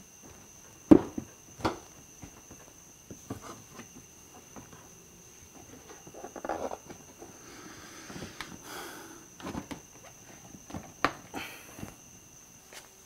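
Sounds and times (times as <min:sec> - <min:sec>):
plastic rubbing: 0:05.6 - 0:07.3.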